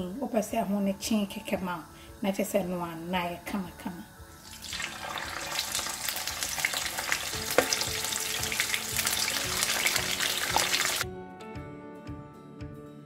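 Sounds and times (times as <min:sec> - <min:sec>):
chicken sizzling in hot oil: 0:00.0 - 0:11.0
oil popping: 0:04.4 - 0:11.0.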